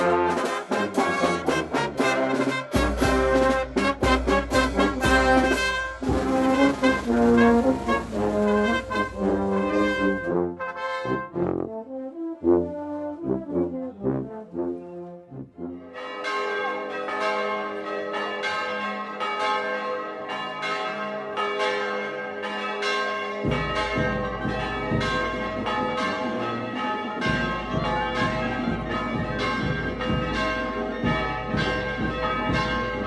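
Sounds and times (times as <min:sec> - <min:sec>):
brass band playing: 0:00.0 - 0:16.0
church bells ringing: 0:02.1 - 0:11.0, 0:15.8 - 0:33.0.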